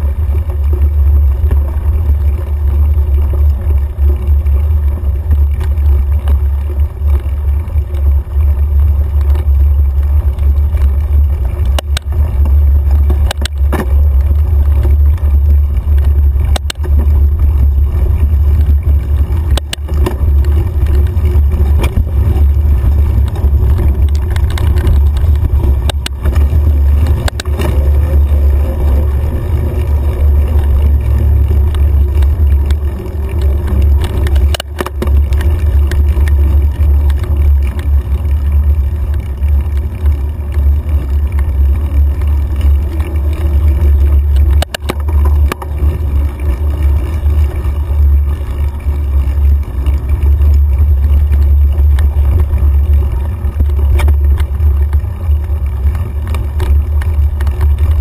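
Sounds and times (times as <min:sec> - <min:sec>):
wind and trail vibration rumble: 0:00.0 - 0:58.0.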